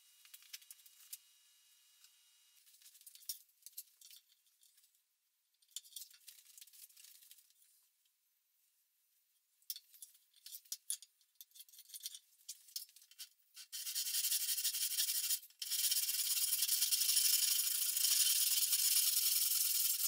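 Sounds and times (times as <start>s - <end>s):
tape measure clicking and rattling: 11.8s - 20.0s.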